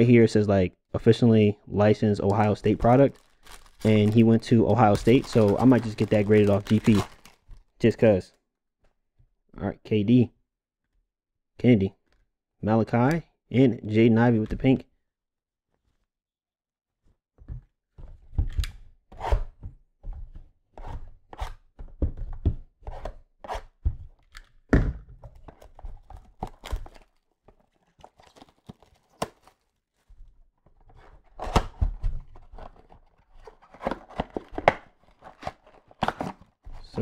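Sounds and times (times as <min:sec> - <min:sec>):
cards shuffling: 0:02.3 - 0:07.5.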